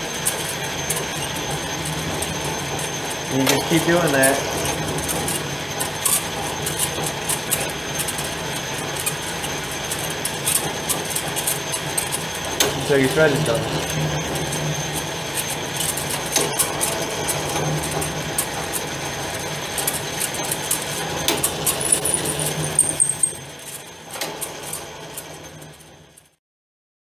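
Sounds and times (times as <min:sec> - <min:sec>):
lathe humming: 0:00.0 - 0:25.5.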